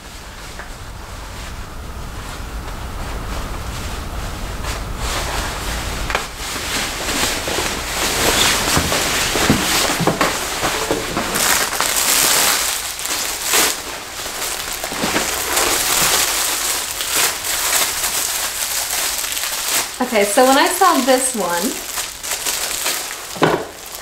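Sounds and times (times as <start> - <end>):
nylon cape rustling: 0.0 - 24.0
plastic package crinkling: 6.3 - 24.0.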